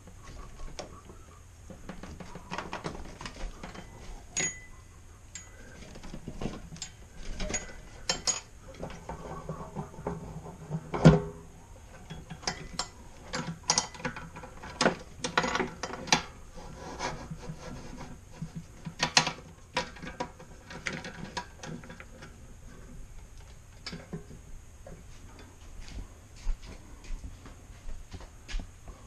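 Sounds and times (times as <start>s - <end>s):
metallic clicks and rattles: 5.3s - 11.2s, 11.9s - 16.3s.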